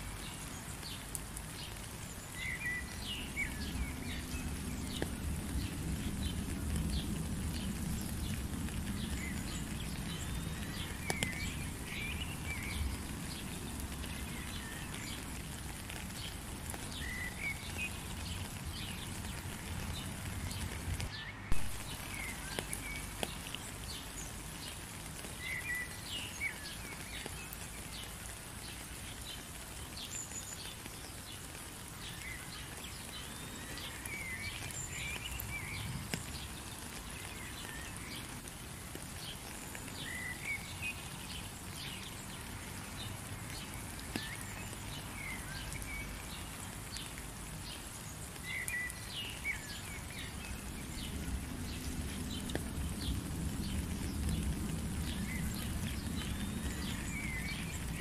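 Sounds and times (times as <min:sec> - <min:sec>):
steady rain: 0:00.0 - 0:58.0.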